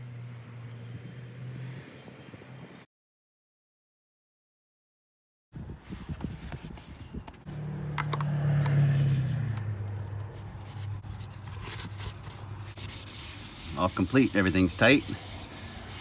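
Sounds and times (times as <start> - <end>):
low engine hum: 6.0 - 12.8
oil filler cap scraping and clicking: 7.2 - 8.8.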